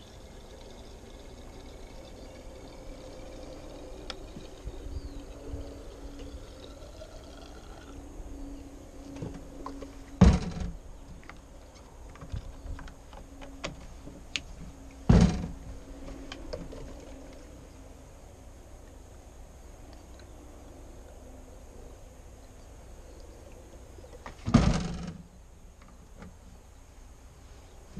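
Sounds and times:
fuel pouring into a tank: 0.0 - 8.0
loud thunks on metal: 10.2 - 10.8, 15.1 - 15.6, 24.5 - 25.2.

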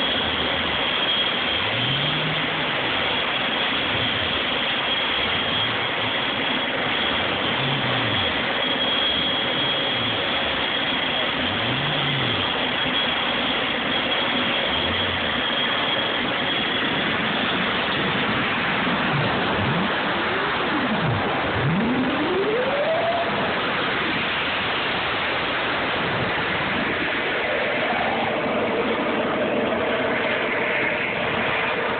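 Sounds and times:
model jet turbines idling: 0.0 - 31.9
rising tones: 17.2 - 31.9.

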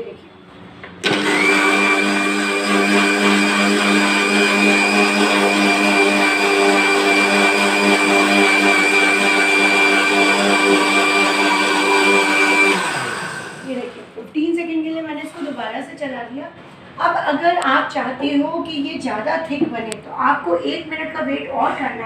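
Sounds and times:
mixer grinder running: 1.0 - 14.2.

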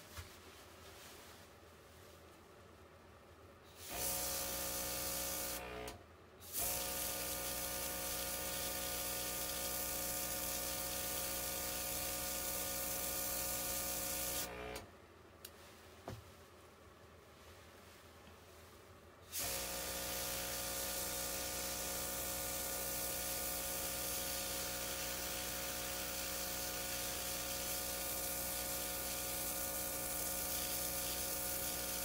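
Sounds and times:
small compressor hum: 3.5 - 32.0
airbrush spraying hiss: 19.3 - 32.0.

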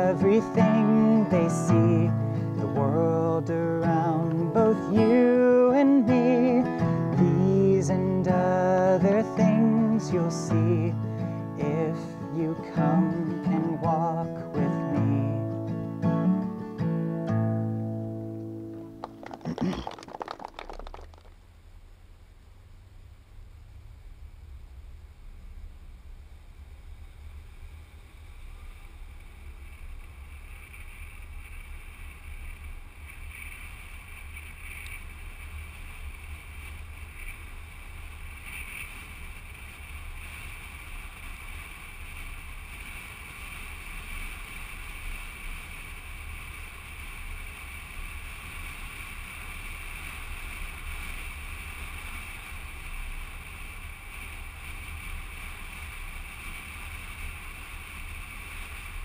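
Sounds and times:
car driving on road rumble: 17.9 - 59.0.

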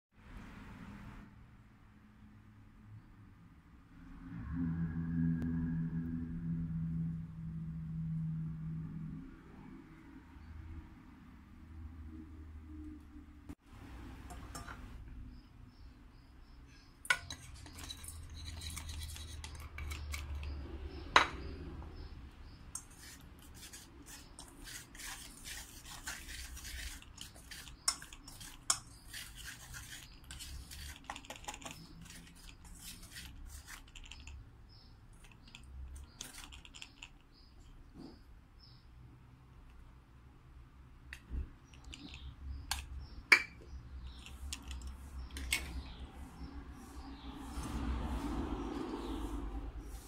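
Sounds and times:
wire whisk scratching metal bowl: 17.1 - 21.0, 22.0 - 34.4, 35.2 - 37.1.

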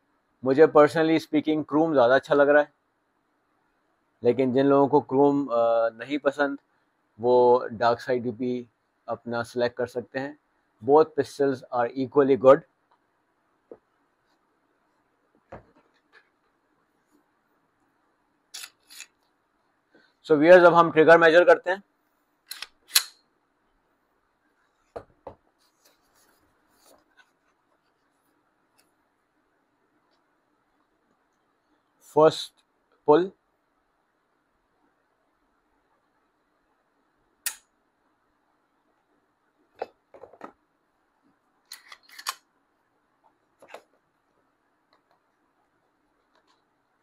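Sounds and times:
pistol slide clicks: 22.5 - 23.2.

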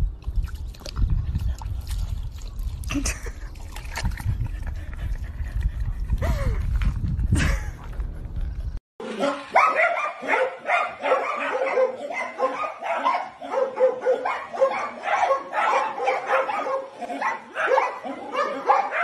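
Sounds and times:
small dogs yapping: 9.0 - 19.0.

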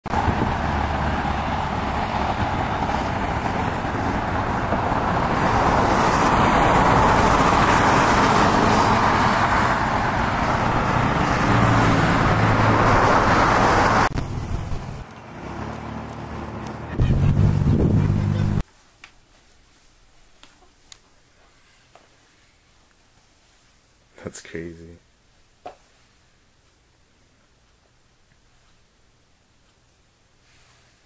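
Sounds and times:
cars passing: 0.1 - 18.6
low engine hum: 0.1 - 18.6.

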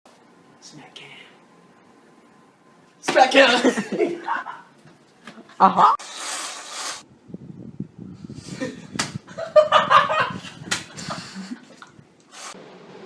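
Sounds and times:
hand slapping face: 8.9 - 9.2, 10.7 - 11.0.

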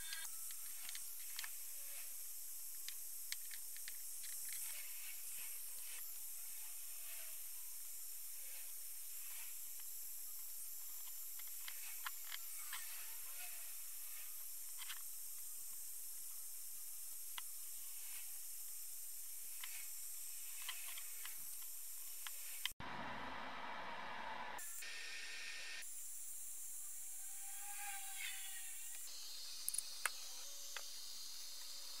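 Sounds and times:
small metal parts clicking: 0.0 - 2.0, 2.7 - 6.0
steady high hiss: 0.0 - 22.8, 24.6 - 32.0.

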